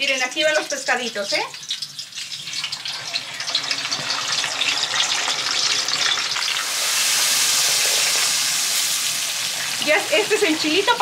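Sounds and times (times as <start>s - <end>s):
fish sizzling in hot oil: 0.0s - 11.0s.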